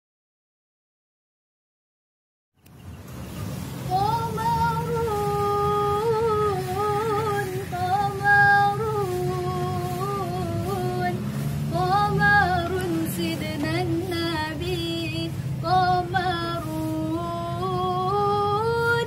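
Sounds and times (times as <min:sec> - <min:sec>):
young woman singing unaccompanied: 0:03.8 - 0:19.0.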